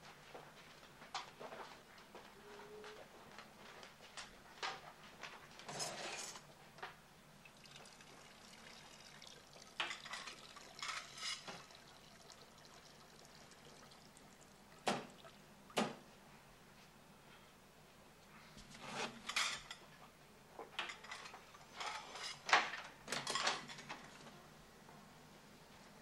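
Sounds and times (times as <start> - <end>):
footsteps: 0.0 - 6.8.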